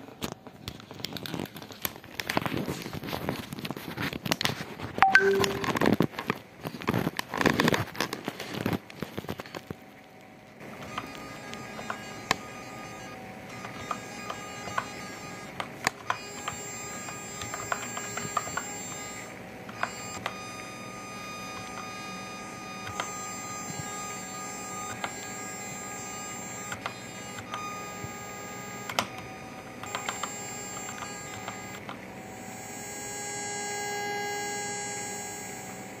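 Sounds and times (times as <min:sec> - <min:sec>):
steady electronic tone: 0:05.0 - 0:05.9
mechanical keyboard key clacks: 0:15.8 - 0:18.6, 0:29.8 - 0:31.9.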